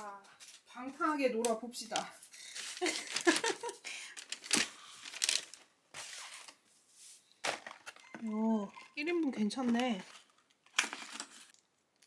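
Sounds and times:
food packaging crinkling and tearing: 0:02.4 - 0:06.6, 0:09.6 - 0:12.0.

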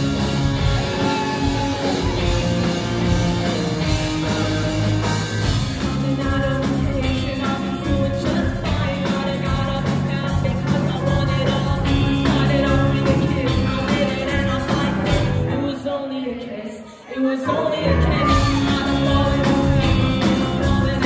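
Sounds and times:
bass guitar: 0:00.0 - 0:15.8, 0:17.8 - 0:21.0
drums: 0:00.0 - 0:15.9, 0:17.8 - 0:21.0
electric guitars: 0:00.0 - 0:16.0, 0:17.5 - 0:21.0
female lead vocal: 0:05.8 - 0:21.0.

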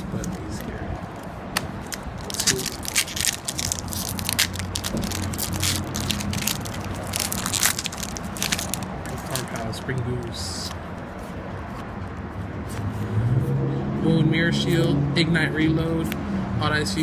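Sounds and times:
foil wrapper crinkling and tearing: 0:01.8 - 0:10.0.

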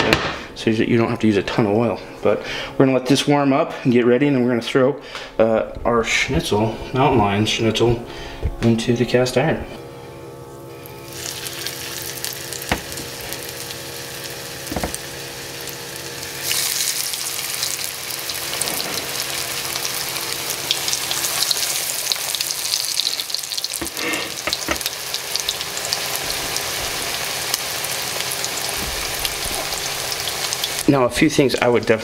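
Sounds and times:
cutlets sizzling in oil: 0:11.0 - 0:30.9.

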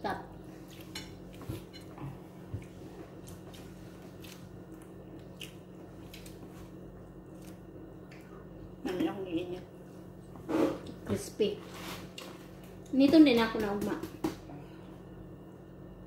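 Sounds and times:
person chewing: 0:00.6 - 0:08.4.

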